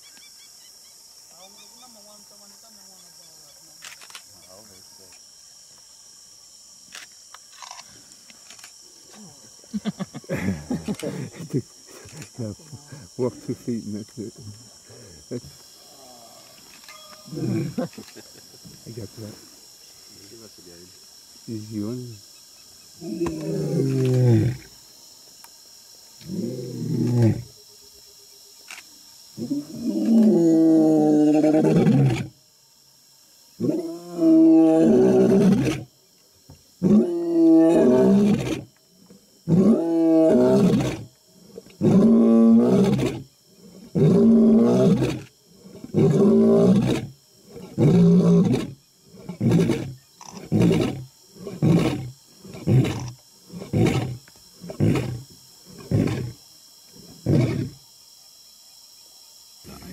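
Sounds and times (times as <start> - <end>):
lion roaring: 43.8 - 56.4.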